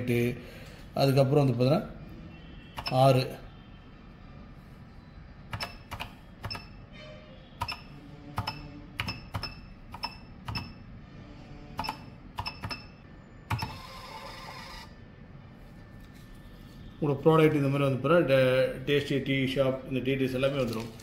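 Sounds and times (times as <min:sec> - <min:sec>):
keys being pressed: 0:05.5 - 0:06.8, 0:07.6 - 0:10.8, 0:11.8 - 0:13.7
short machine beeps: 0:07.6 - 0:10.8
thermal printer printing: 0:07.6 - 0:15.0.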